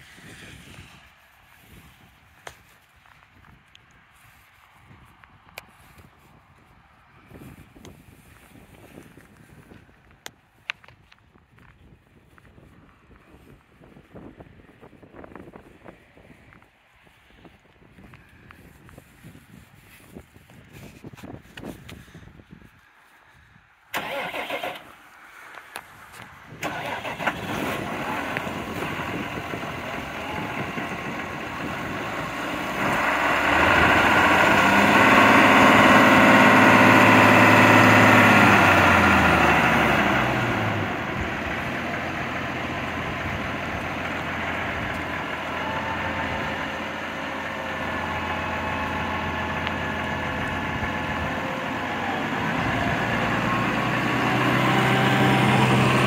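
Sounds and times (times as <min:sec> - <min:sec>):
tractor diesel engine running: 0:23.9 - 0:56.0.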